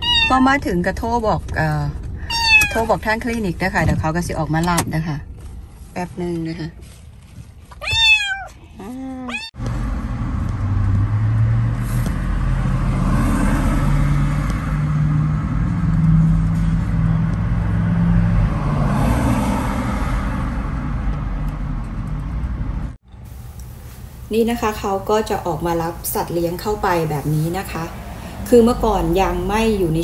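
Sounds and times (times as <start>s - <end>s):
kitten meowing: 0.0s - 0.4s, 2.3s - 2.9s, 7.8s - 9.5s.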